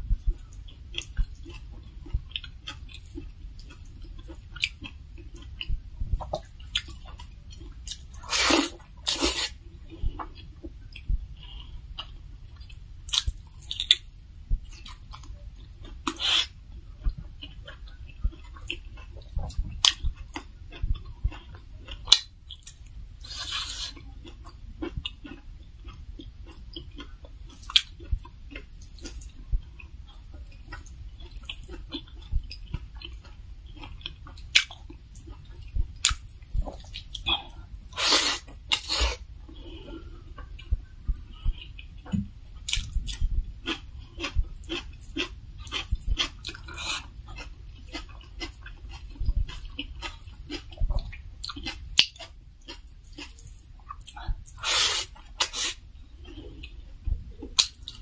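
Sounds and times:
chewing and mouth sounds: 0.1 - 58.0
hissing mouth sounds: 8.2 - 9.6, 16.1 - 16.5, 38.0 - 39.2, 54.6 - 55.8.

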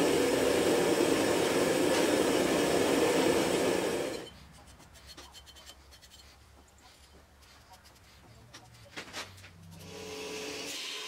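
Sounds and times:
paint marker scratching on metal: 4.2 - 9.9.

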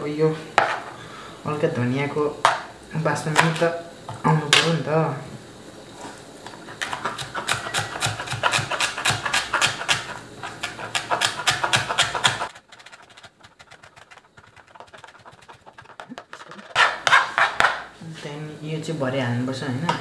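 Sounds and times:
knife chopping on cutting board: 6.8 - 17.9.

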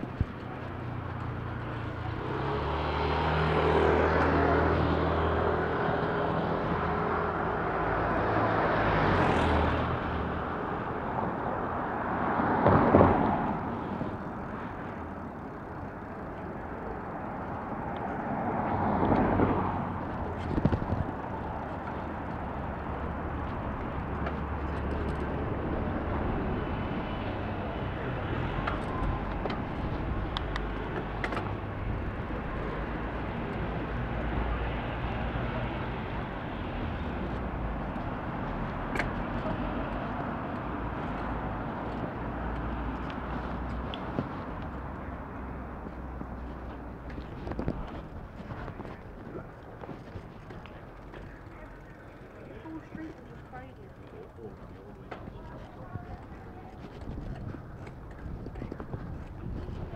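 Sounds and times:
vehicles passing: 0.0 - 59.9.

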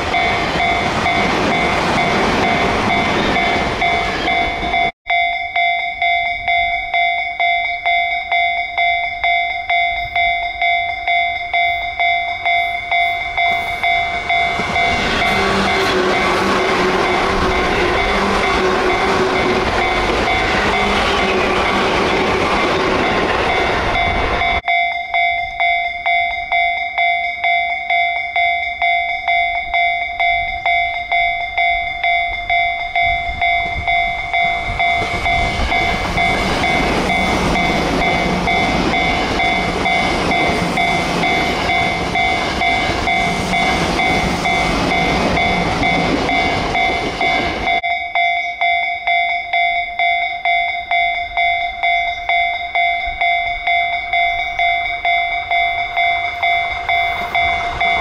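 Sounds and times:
train wheels rushing on rail: 0.0 - 4.9, 11.6 - 24.6, 31.4 - 47.9, 51.2 - 58.0
level-crossing bell ringing: 0.0 - 58.0.

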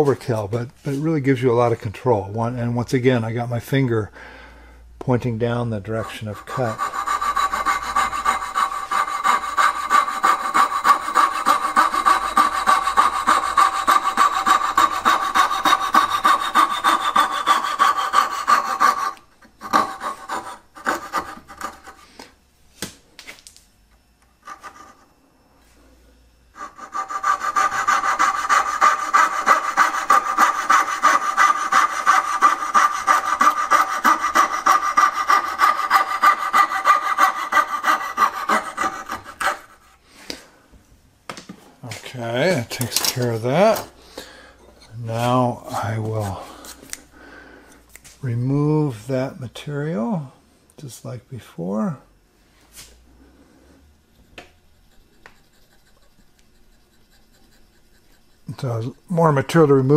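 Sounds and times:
fret saw rasping through wood: 5.8 - 22.0, 26.6 - 39.9, 54.8 - 58.7.

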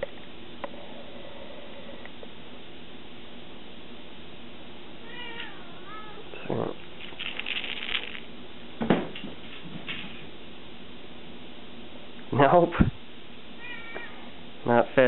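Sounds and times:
kitten meowing: 5.0 - 6.4, 13.6 - 14.3
rustling: 6.7 - 8.4.

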